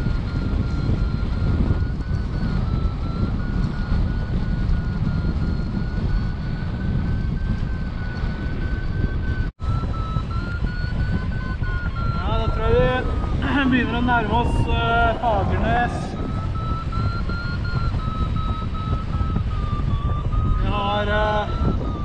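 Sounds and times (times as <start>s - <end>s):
variometer high tone: 0.0s - 22.0s
wind rushing over microphone: 0.0s - 22.0s.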